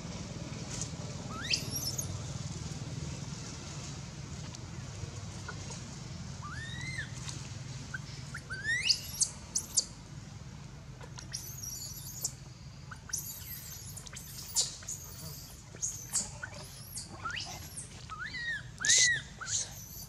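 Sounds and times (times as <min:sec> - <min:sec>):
steady low hum: 0:00.0 - 0:20.0
baby monkey crying: 0:01.3 - 0:02.1, 0:06.4 - 0:07.2, 0:07.9 - 0:09.9, 0:11.0 - 0:20.0.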